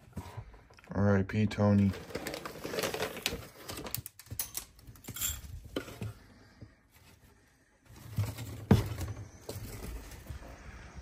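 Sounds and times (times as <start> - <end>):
food bag crinkling and rustling: 1.8 - 4.2.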